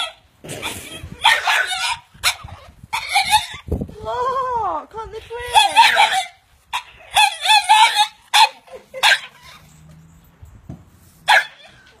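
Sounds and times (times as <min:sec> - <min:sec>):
dog yelping: 0:00.0 - 0:03.7, 0:05.4 - 0:09.8, 0:11.3 - 0:12.0.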